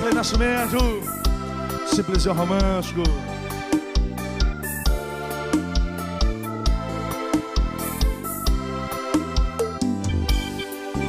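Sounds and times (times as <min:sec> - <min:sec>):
keyboard chords: 0:00.0 - 0:11.0
kick drum beat: 0:03.8 - 0:05.0.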